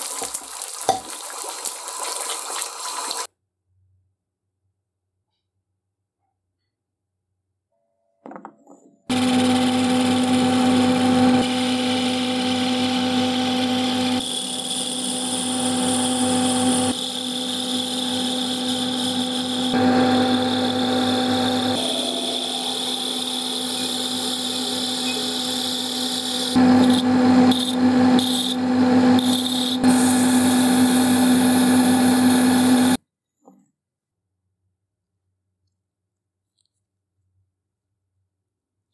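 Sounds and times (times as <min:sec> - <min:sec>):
electric power tool motor humming: 0:09.1 - 0:33.0.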